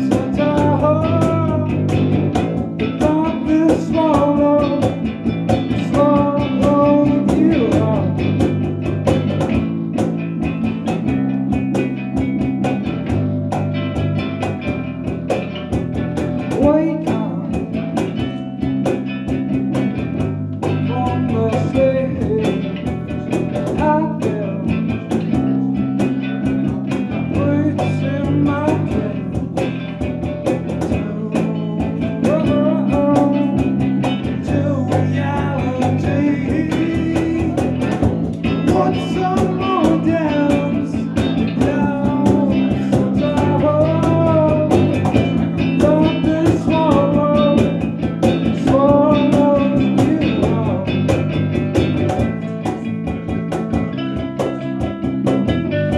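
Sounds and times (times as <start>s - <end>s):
man singing into microphone: 0.0s - 1.9s, 2.8s - 5.0s, 5.6s - 8.3s, 16.5s - 17.5s, 20.8s - 24.9s, 27.1s - 29.5s, 30.6s - 51.1s
electric guitar chords: 0.0s - 55.9s
strummed acoustic guitar: 0.0s - 55.9s.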